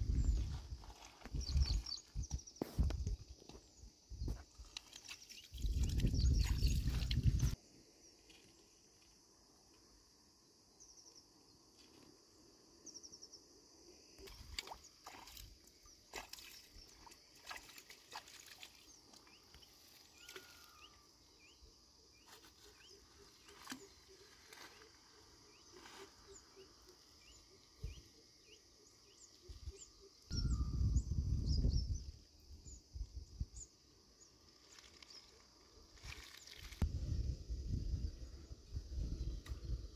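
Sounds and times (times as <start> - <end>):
bird chirps: 20.2 - 32.8.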